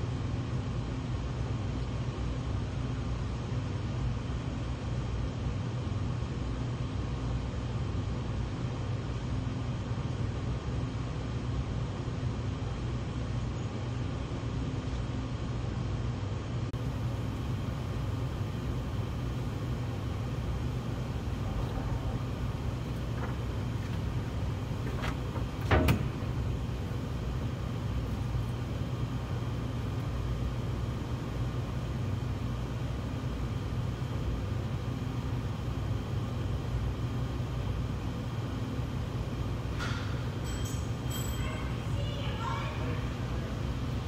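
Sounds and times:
kitchen machinery humming: 0:16.8 - 0:44.0.

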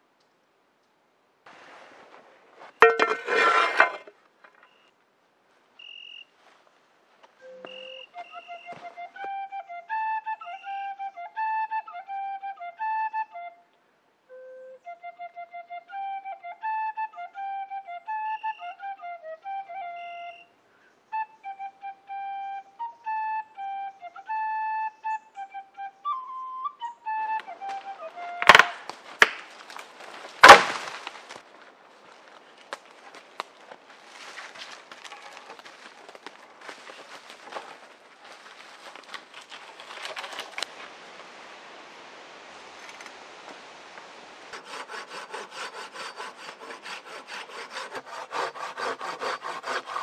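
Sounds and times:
stones rustling and scraping: 0:01.5 - 0:04.7, 0:28.4 - 0:41.0
flute melody: 0:07.4 - 0:29.8.

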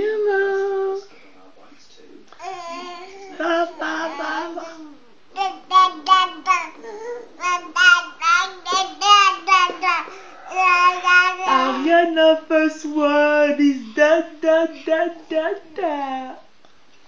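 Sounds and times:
baby babbling: 0:02.4 - 0:11.9.

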